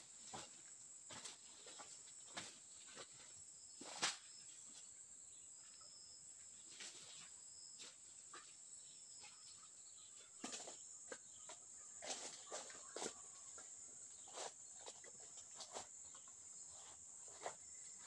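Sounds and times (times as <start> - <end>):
footsteps on dry leaves and twigs: 10.4 - 18.0.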